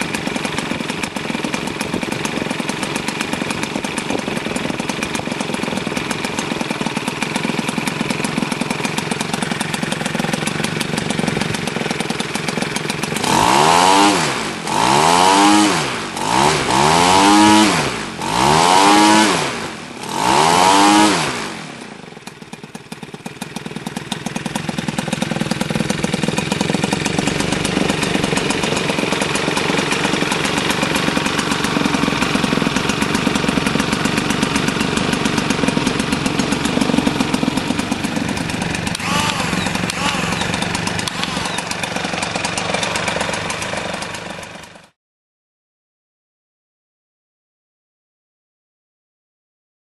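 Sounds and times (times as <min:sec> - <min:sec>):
two-stroke engine revving: 0:00.0 - 0:45.0.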